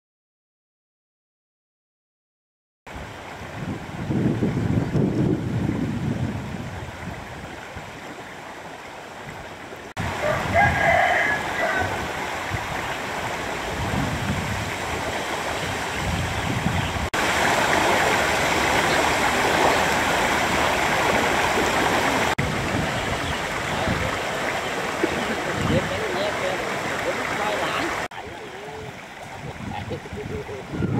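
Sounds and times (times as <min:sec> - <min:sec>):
wind rumble on microphone: 0:02.9 - 0:08.3, 0:09.2 - 0:26.2, 0:26.8 - 0:30.9
floodwater rushing: 0:02.9 - 0:30.9
rooster crowing: 0:10.1 - 0:12.1.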